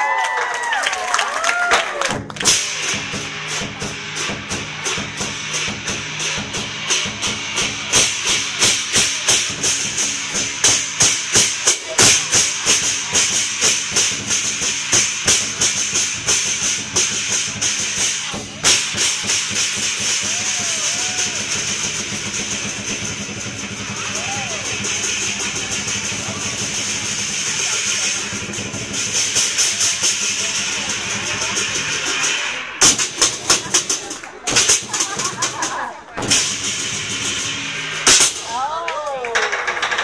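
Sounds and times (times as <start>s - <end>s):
drum beaten in driving rhythm: 1.6s - 40.0s
cymbals clashing: 2.3s - 40.0s.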